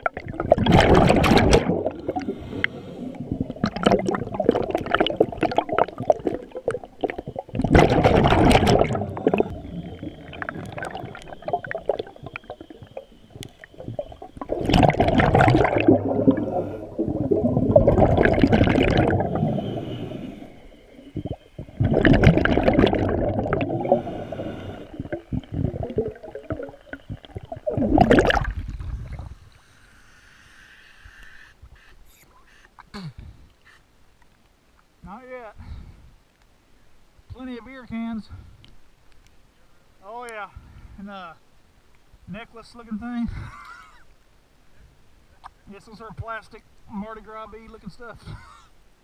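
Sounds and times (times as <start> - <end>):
water splashing over camera: 0.0 - 19.6, 21.2 - 29.3
underwater bubbling bursts: 0.0 - 29.5.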